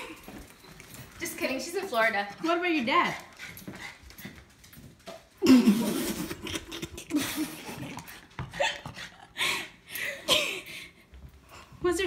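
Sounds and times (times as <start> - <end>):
girl laughing: 5.4 - 8.8.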